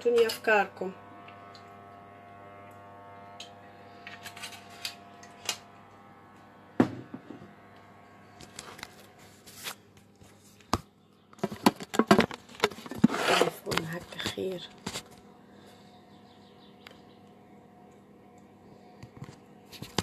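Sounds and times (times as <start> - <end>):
sharp knock: 6.8 - 7.4.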